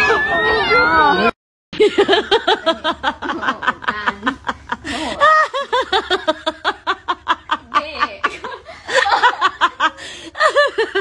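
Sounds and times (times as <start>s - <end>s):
person laughing hard: 1.8s - 7.7s.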